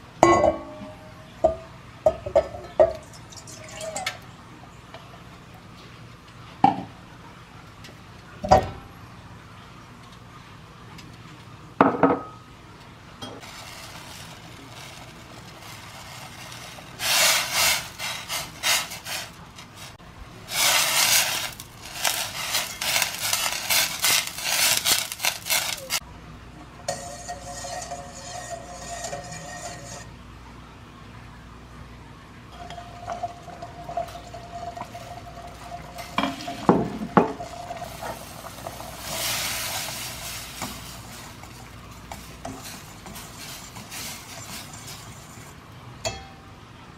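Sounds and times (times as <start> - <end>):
whisk clinking in metal bowl: 26.9 - 30.0.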